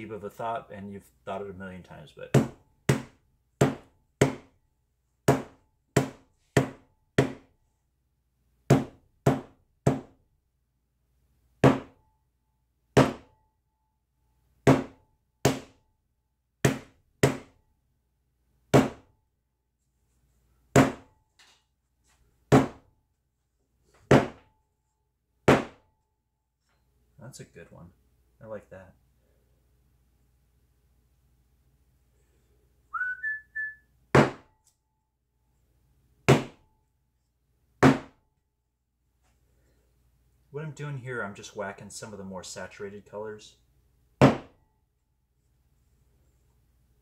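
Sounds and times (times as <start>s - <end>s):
hammer striking a hard panel: 2.3s - 4.5s, 5.3s - 7.5s, 8.7s - 10.2s, 11.6s - 12.0s, 13.0s - 13.4s, 14.7s - 15.8s, 16.6s - 17.6s, 18.7s - 19.1s, 20.8s - 21.1s, 22.5s - 22.8s, 24.1s - 24.4s, 25.5s - 25.9s, 34.2s - 34.5s, 36.3s - 36.6s, 37.8s - 38.2s, 44.2s - 44.6s.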